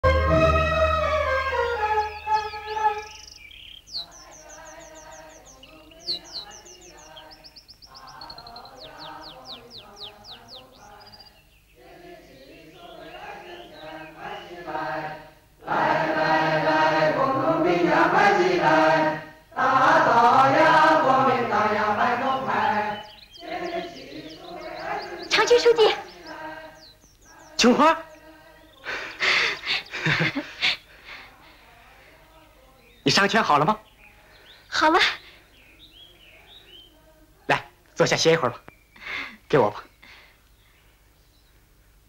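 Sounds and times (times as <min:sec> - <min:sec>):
birds chirping: 0:00.0 - 0:42.0
chorus of voices singing: 0:03.9 - 0:29.5.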